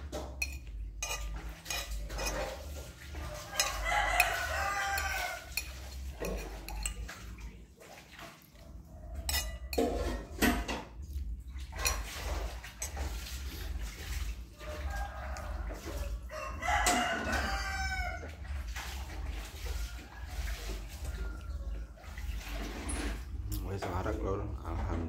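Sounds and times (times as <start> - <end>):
spoon scraping ceramic plate: 0.0 - 7.2, 9.2 - 10.7, 11.7 - 14.2.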